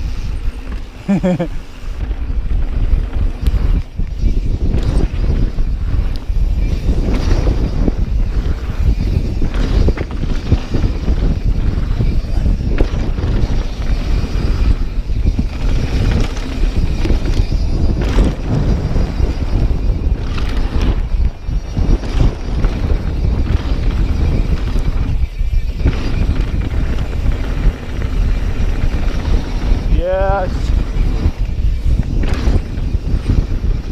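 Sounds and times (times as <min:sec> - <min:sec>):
bike rattling over bumps: 0:00.0 - 0:33.9
wind buffeting microphone: 0:00.0 - 0:33.9.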